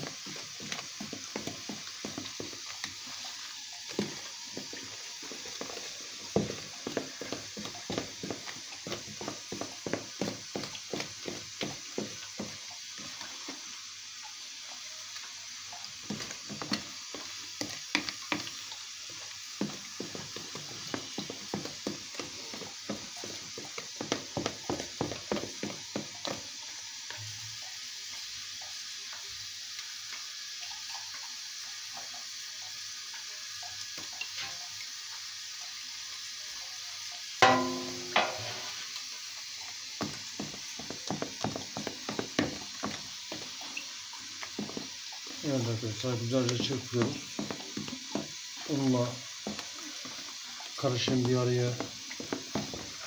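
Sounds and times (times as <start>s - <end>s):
small knock: 37.4s - 38.5s
metallic clank: 37.4s - 38.7s
whisk tapping in plastic bowl: 45.6s - 48.3s.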